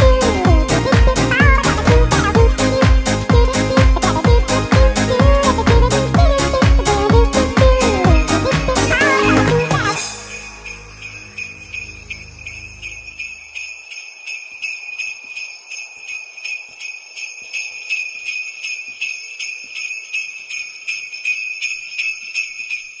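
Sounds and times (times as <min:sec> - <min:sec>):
jingle bells shaken: 0:00.0 - 0:23.0.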